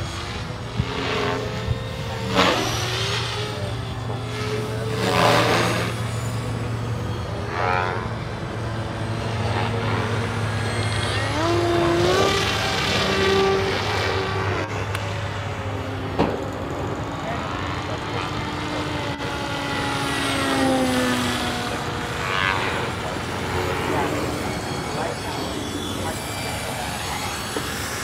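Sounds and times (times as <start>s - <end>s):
electric motor and propeller droning: 0.0s - 28.0s.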